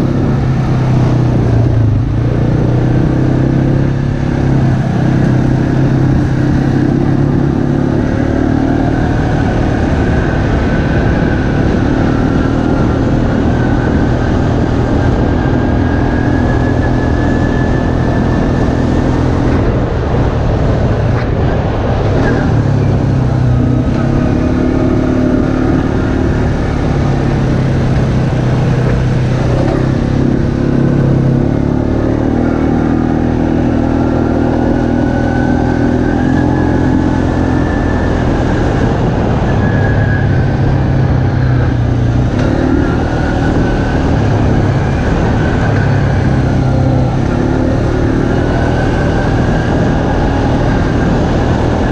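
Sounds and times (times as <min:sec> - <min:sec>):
off-road vehicle engine: 0:00.0 - 0:51.9
rising and falling whine: 0:00.0 - 0:51.9
vehicle bumps and rattles: 0:26.4 - 0:31.0.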